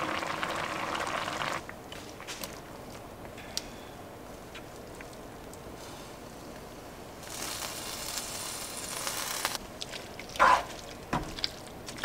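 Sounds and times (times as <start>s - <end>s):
pasta sizzling in hot sauce: 7.2s - 9.6s
wet squelches of tossed noodles: 9.6s - 12.0s.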